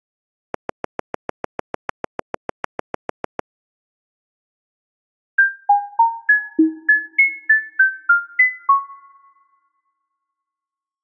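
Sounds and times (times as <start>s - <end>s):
rapid synthetic clicks: 0.6s - 3.4s
bell-like pitched plinks: 5.4s - 7.8s.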